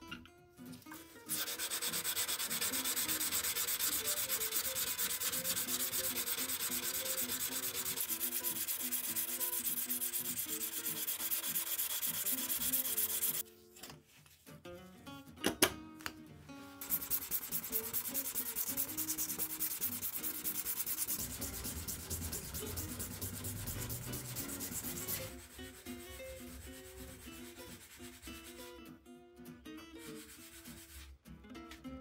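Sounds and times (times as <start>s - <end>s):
sandpaper sanding metal: 1.3s - 13.4s, 16.8s - 28.7s, 30.0s - 31.1s
background music: 14.6s - 32.0s.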